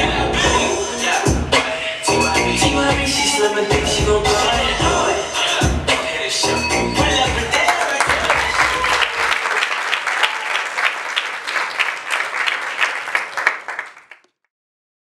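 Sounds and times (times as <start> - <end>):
bass-heavy dance music: 0.0 - 9.0
audience applauding: 7.6 - 14.3.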